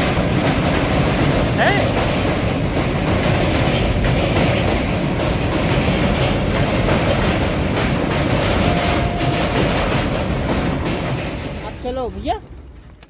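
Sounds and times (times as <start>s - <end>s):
train wheels clattering on bridge: 0.0s - 13.0s.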